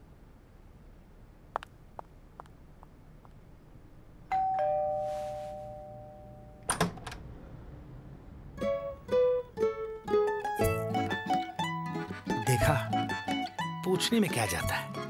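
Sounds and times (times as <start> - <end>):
two-tone doorbell chime: 4.3 - 6.7
door opening clicks: 6.6 - 7.3
plucked-string jingle: 8.6 - 15.0.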